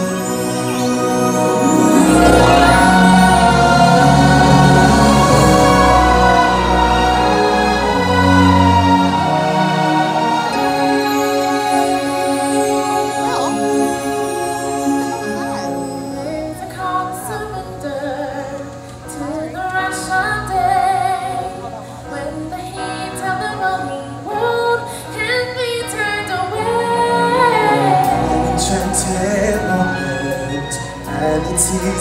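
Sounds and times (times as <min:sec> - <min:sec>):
musical accompaniment: 0:00.0 - 0:32.0
woman singing: 0:10.4 - 0:30.5.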